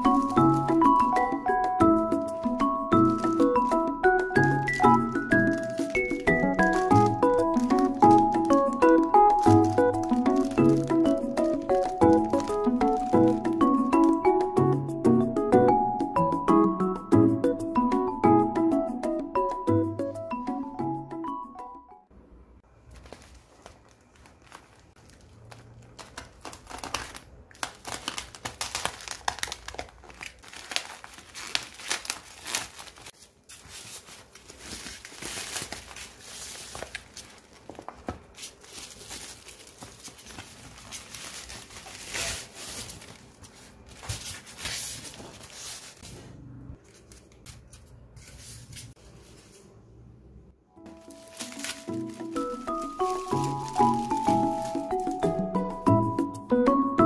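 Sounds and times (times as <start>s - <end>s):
plastic packaging crinkling and tearing: 0.0s - 14.5s, 22.7s - 46.1s, 50.8s - 55.6s.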